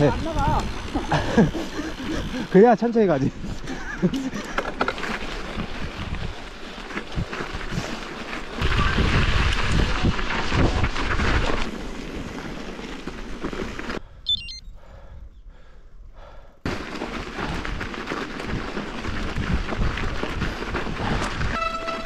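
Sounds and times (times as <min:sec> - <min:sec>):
bike rolling on snowy road: 0:00.0 - 0:14.2, 0:16.2 - 0:22.0
wind buffeting microphone: 0:17.4 - 0:21.7.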